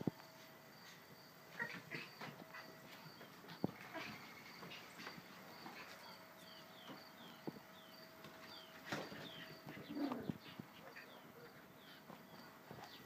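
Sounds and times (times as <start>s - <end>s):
puppy paws scuffling on floor: 1.6s - 13.0s
bird chirping: 1.9s - 13.0s.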